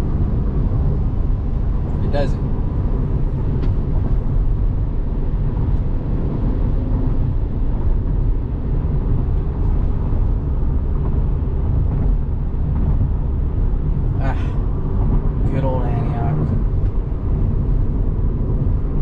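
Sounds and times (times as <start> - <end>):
road and tyre noise in car: 0.0 - 19.0.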